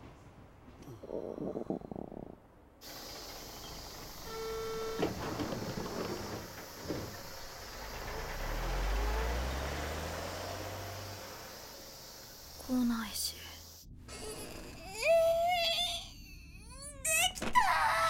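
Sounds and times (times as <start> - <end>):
train rattle: 2.8 - 9.4
air hiss of bus doors: 2.8 - 12.8
bus engine rumble: 2.8 - 13.8.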